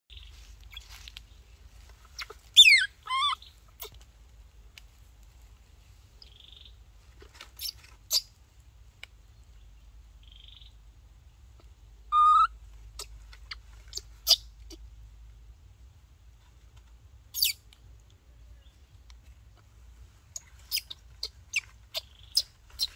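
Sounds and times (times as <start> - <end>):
baby monkey crying: 2.2 - 4.0, 11.6 - 14.8.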